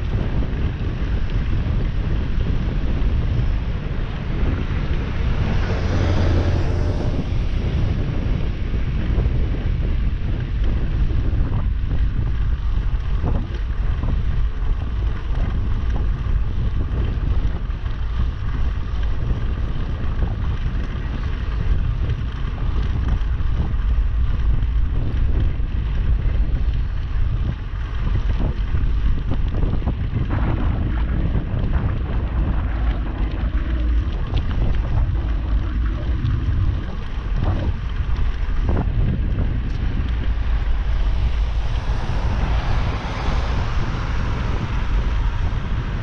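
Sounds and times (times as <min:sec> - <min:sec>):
road noise: 0:00.0 - 0:46.0
wind buffeting microphone: 0:00.0 - 0:46.0
city bus passing: 0:04.0 - 0:08.5, 0:39.5 - 0:46.0.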